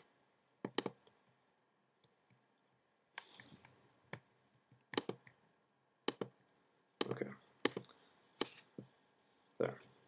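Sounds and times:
trackpad clicks: 0:04.9 - 0:05.3, 0:06.1 - 0:06.3
fingers brushing across trackpad: 0:07.7 - 0:08.9.

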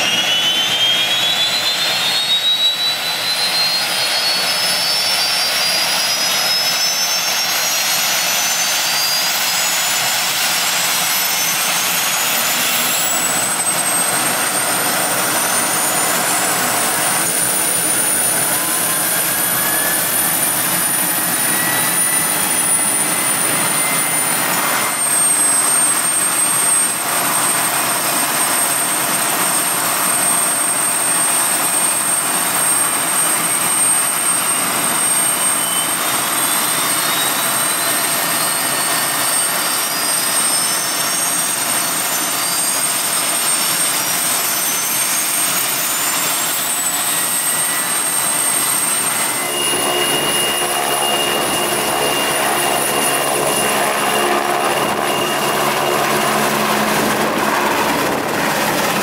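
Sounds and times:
helicopter rotors rushing: 0:00.0 - 0:59.0
high turbine whine: 0:00.0 - 0:59.0
whine rising in pitch: 0:00.0 - 0:59.0.

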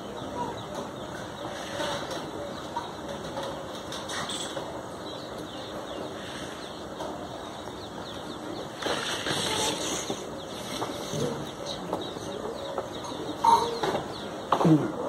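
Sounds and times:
birds chirping: 0:00.0 - 0:15.0
pipe scraping in soil: 0:08.8 - 0:11.4.

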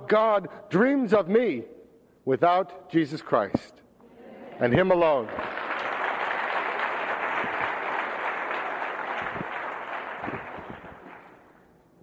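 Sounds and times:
audience applause: 0:05.1 - 0:11.4.

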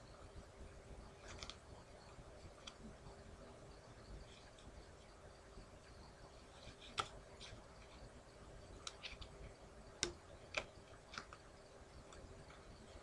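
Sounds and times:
faint steady hum: 0:00.0 - 0:13.0
playing cards snapping: 0:06.9 - 0:07.2.

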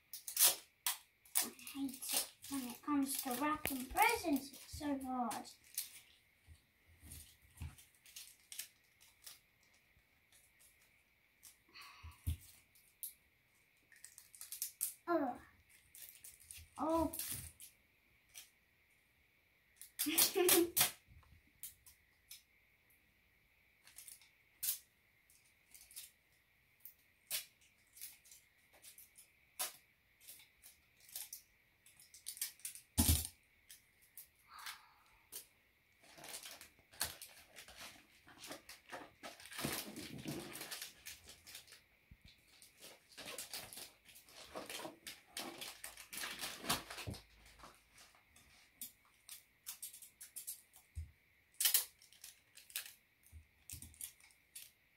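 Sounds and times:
tape pulled from roll: 0:00.1 - 0:00.7
wrapping paper crinkling: 0:01.2 - 0:06.2, 0:07.0 - 0:13.1, 0:13.9 - 0:15.0, 0:15.6 - 0:18.5, 0:36.0 - 0:50.6, 0:51.6 - 0:53.0.

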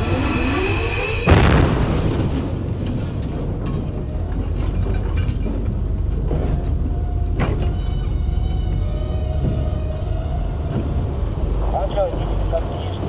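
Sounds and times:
steady low rumble: 0:00.0 - 0:13.0
metal clatters: 0:01.8 - 0:11.6.

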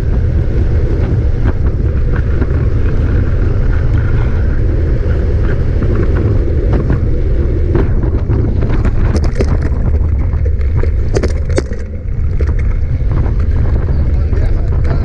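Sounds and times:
wind rumble on microphone: 0:00.0 - 0:15.0
bike clattering over stony ground: 0:07.8 - 0:15.0.

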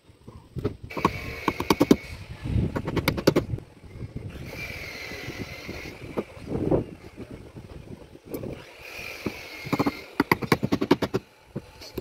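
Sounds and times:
sharp metallic clicks of hand tool: 0:00.9 - 0:02.0, 0:09.2 - 0:11.2.

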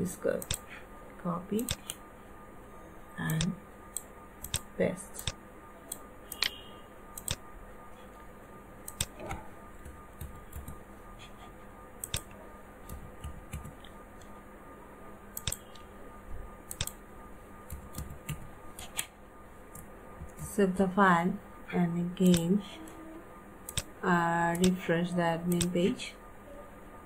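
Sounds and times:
faint electrical hum: 0:00.0 - 0:27.0
computer mouse clicks: 0:00.4 - 0:00.7, 0:01.6 - 0:02.0, 0:03.2 - 0:06.6, 0:07.2 - 0:07.4, 0:08.8 - 0:10.8, 0:12.0 - 0:14.3, 0:15.4 - 0:15.9, 0:16.7 - 0:17.0, 0:22.2 - 0:23.0, 0:23.7 - 0:23.9
keyboard key presses: 0:08.9 - 0:10.8, 0:12.0 - 0:14.0, 0:16.7 - 0:17.0, 0:17.7 - 0:19.1.

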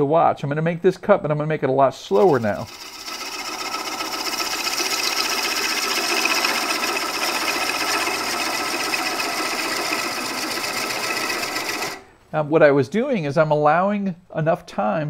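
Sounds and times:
gouge cutting wood on lathe: 0:02.1 - 0:12.1.

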